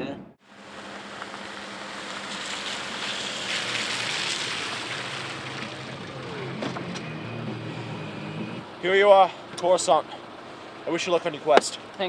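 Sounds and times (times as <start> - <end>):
tyres hissing on wet slushy road: 0.4 - 6.6
car engine hum: 0.4 - 12.0.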